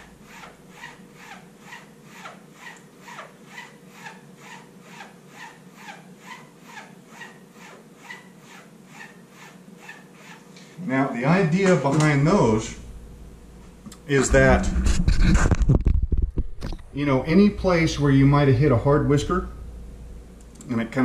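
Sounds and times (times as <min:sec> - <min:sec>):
razor swishing on strop: 0:00.0 - 0:10.5.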